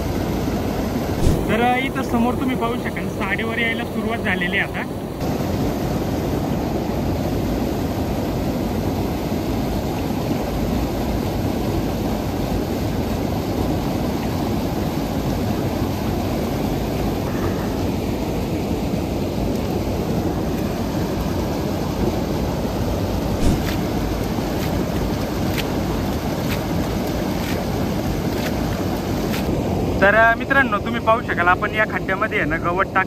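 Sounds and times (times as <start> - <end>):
water rushing over rocks: 0.1 - 5.8, 9.1 - 29.5.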